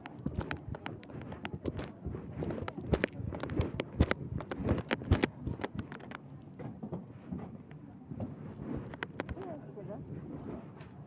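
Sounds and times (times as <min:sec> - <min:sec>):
phone rubbing against cloth: 0:00.0 - 0:06.1.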